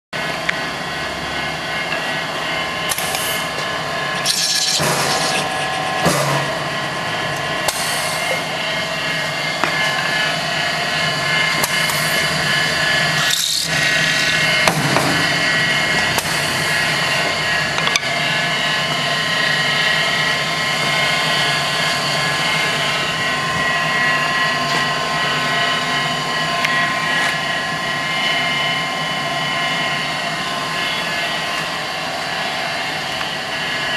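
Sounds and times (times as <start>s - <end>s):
machine motor whine: 0.2s - 33.9s
cutter threading wooden dowels: 4.2s - 5.4s.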